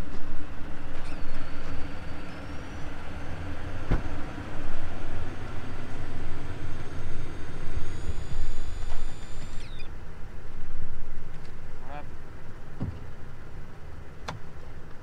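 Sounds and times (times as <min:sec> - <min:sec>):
drone propellers whirring: 0:00.1 - 0:10.0.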